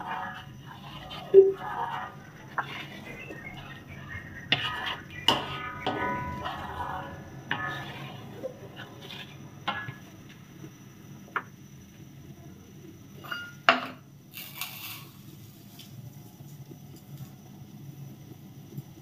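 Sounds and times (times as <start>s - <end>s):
spatula stirring in wok: 0.0s - 10.9s
low steady hum: 0.0s - 14.2s.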